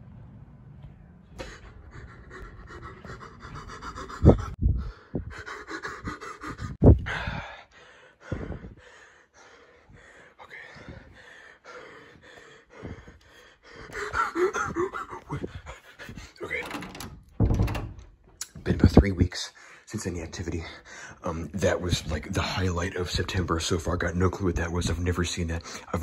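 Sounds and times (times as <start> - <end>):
person breathing quickly: 1.3 - 16.4, 19.5 - 19.9, 20.6 - 21.2.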